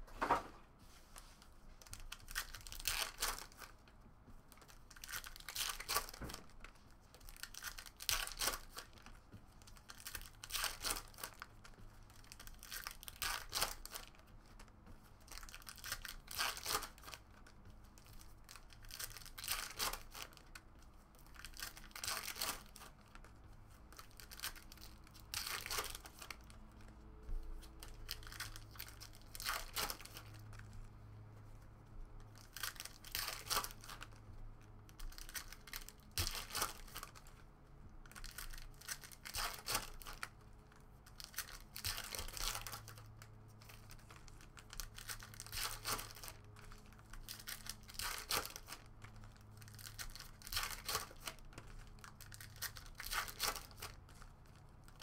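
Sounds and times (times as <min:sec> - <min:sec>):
foil packs tearing and crinkling: 0:02.1 - 0:03.6, 0:07.3 - 0:09.0, 0:12.2 - 0:14.2, 0:15.3 - 0:17.2, 0:18.1 - 0:20.5, 0:21.3 - 0:22.9, 0:24.0 - 0:26.4, 0:28.0 - 0:30.4, 0:35.1 - 0:37.2, 0:38.1 - 0:40.3, 0:41.1 - 0:43.0, 0:43.7 - 0:54.0.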